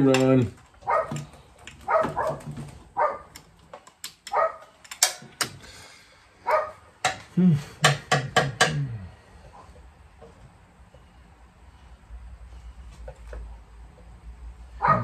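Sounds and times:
dog barking: 0:00.8 - 0:01.2, 0:01.8 - 0:03.3, 0:04.3 - 0:04.7, 0:06.4 - 0:06.8, 0:14.8 - 0:15.0
sharp clicks: 0:03.3 - 0:05.6.

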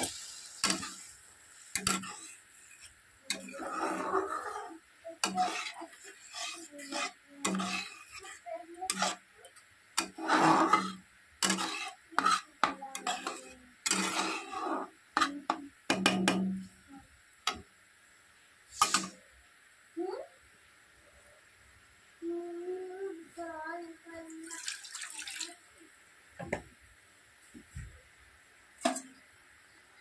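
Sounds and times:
spatula scraping metal pan: 0:00.0 - 0:01.1, 0:01.7 - 0:09.3, 0:10.0 - 0:15.6, 0:18.8 - 0:19.1.

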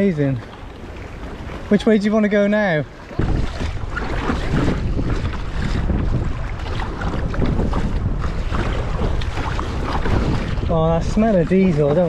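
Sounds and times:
water splashing against kayak hull: 0:00.0 - 0:12.0
wind buffeting microphone: 0:02.9 - 0:12.0.

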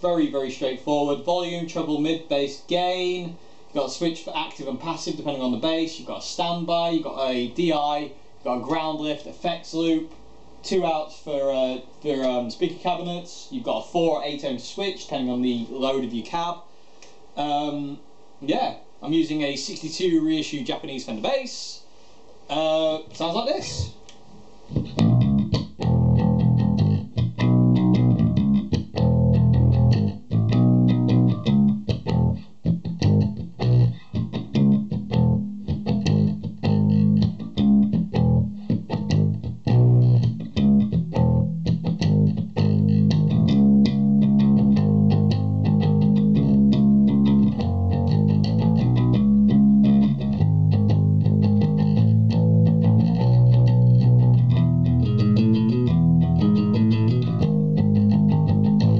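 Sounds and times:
electric bass fingerstyle: 0:24.7 - 0:58.9.

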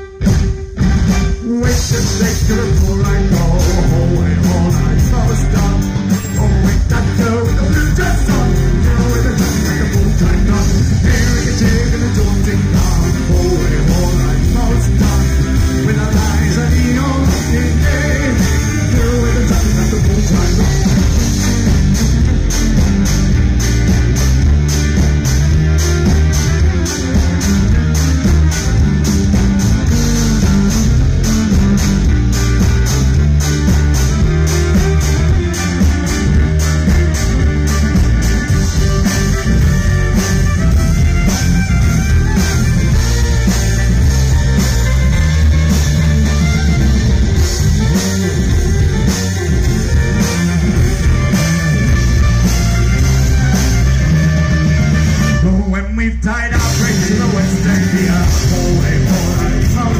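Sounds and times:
folk-rock band playing: 0:00.0 - 0:59.9
man singing: 0:01.3 - 0:21.5, 0:55.2 - 0:59.9.

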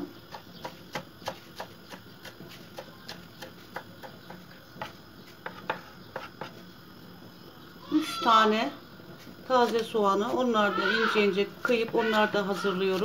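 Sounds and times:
knife chopping on wooden board: 0:00.2 - 0:06.6.

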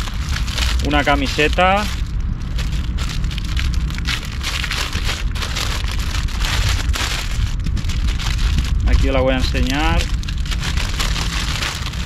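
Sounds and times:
low steady rumble: 0:00.0 - 0:12.0
plastic packaging crinkling: 0:00.0 - 0:12.0.

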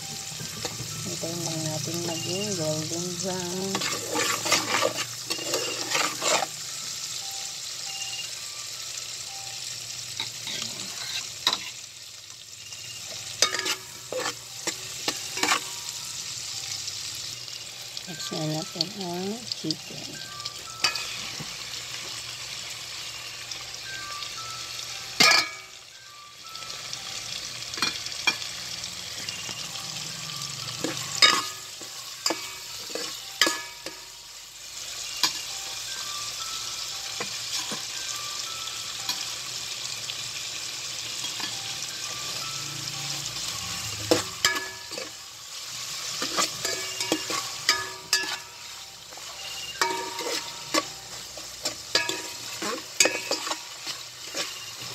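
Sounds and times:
chicken sizzling in hot oil: 0:00.0 - 0:54.9
spatula scraping a metal pot: 0:03.6 - 0:06.6, 0:10.3 - 0:11.8, 0:13.4 - 0:15.7, 0:46.0 - 0:48.5, 0:49.1 - 0:54.9.

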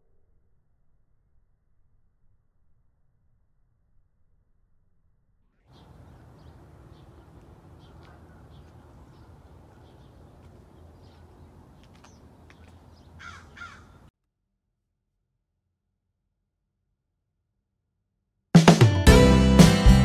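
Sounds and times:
small birds chirping: 0:05.7 - 0:14.1
crow cawing: 0:05.8 - 0:14.1.

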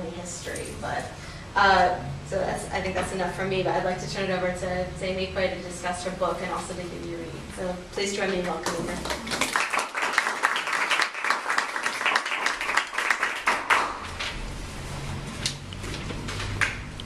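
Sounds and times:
small audience applauding: 0:08.6 - 0:14.2, 0:16.5 - 0:16.9.

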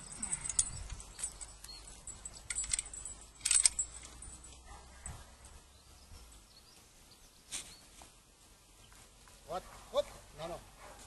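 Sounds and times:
harness chains jingling: 0:00.0 - 0:06.8.

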